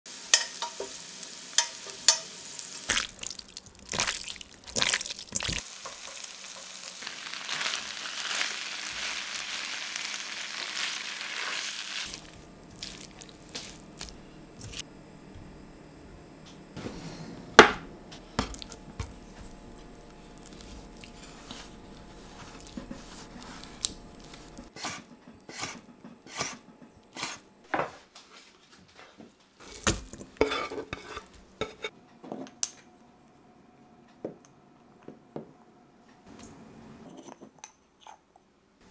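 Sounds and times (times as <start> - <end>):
potatoes sizzling in oil: 0.1 - 14.2, 29.6 - 31.9
utensil clinking and scraping in pan: 1.6 - 2.4, 29.6 - 31.9.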